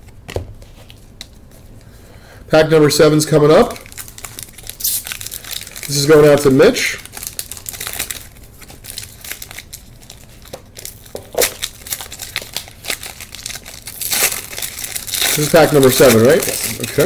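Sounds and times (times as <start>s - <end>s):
foil wrapper crinkling: 3.6s - 17.0s.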